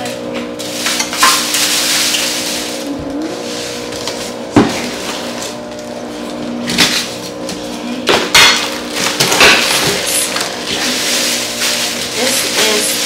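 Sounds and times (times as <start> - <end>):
steady low hum: 0.0 - 13.0
packaging rustling: 8.6 - 13.0.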